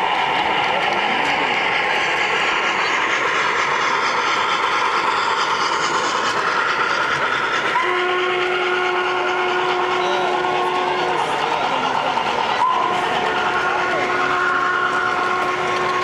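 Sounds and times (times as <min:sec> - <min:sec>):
model train rolling: 0:00.0 - 0:16.0
steam whistle: 0:07.8 - 0:11.1, 0:12.6 - 0:16.0.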